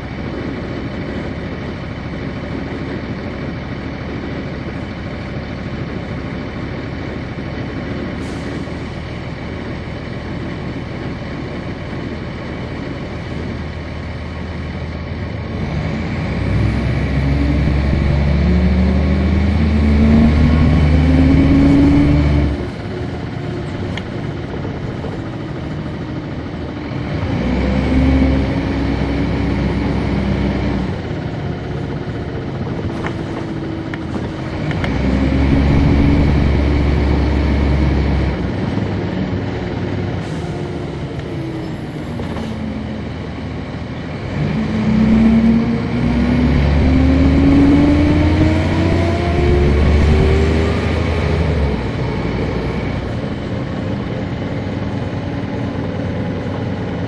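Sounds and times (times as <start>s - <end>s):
diesel bus engine pulling away: 0.0s - 57.0s.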